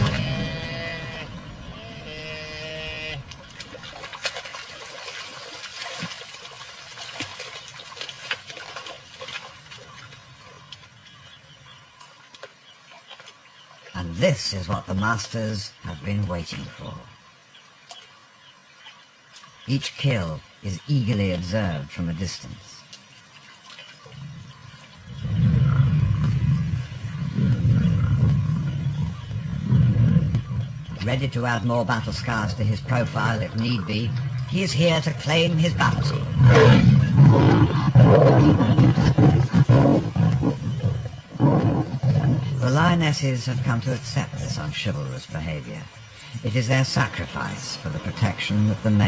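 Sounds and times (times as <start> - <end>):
animals splashing through water: 0.0 - 14.0, 22.9 - 25.2
sharp splashes and knocks: 3.3 - 10.1
lions growling low: 24.1 - 31.0, 35.4 - 43.0.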